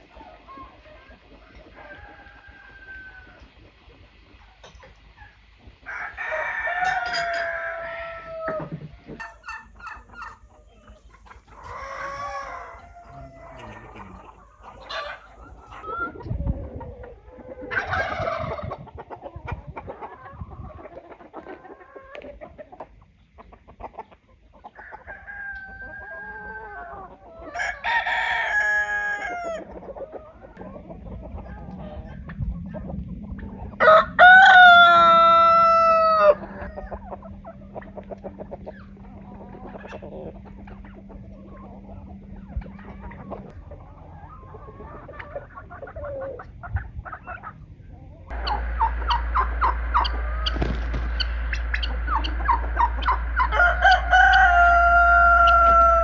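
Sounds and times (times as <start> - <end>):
chickens clucking: 0.0 - 56.0
rooster crowing: 1.7 - 3.5, 5.8 - 8.8, 11.6 - 14.1, 24.8 - 29.7, 33.8 - 37.1, 48.3 - 56.0.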